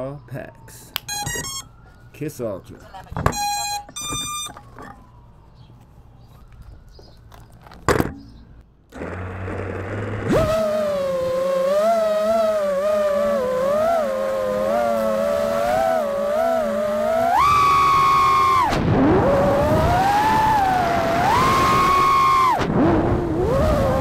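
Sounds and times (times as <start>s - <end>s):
drone motors whining: 1.1s - 1.8s, 8.9s - 24.0s.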